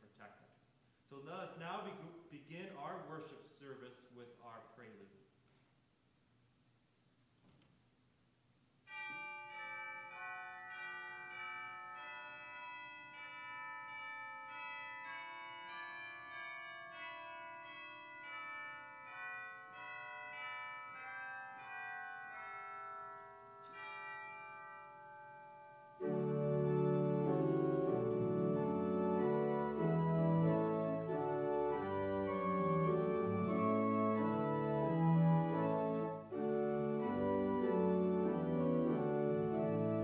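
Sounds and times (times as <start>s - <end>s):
pipe organ playing chords: 9.2s - 24.5s, 26.0s - 40.0s.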